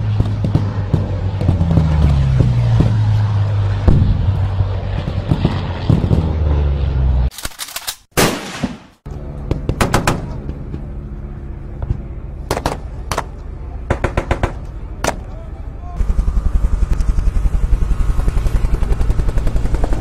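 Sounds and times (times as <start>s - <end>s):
low pulsing drone: 0.0s - 7.3s, 9.1s - 20.0s
steady drone: 9.1s - 20.0s.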